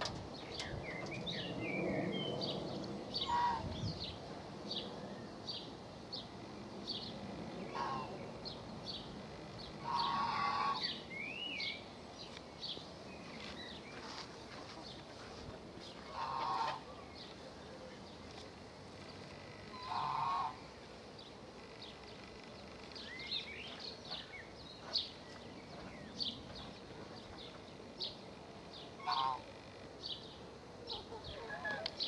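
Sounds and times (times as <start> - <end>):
birds chirping: 0.0 - 32.0
louder lower bird calls: 3.1 - 4.2, 7.7 - 8.2, 9.8 - 11.8, 19.4 - 20.7, 28.9 - 29.9.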